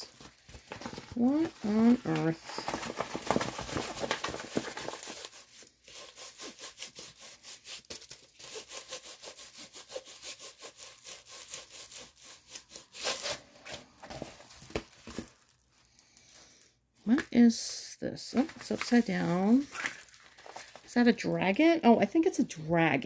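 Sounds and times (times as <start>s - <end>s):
plastic covered canvas rubbing table: 0.0s - 15.4s.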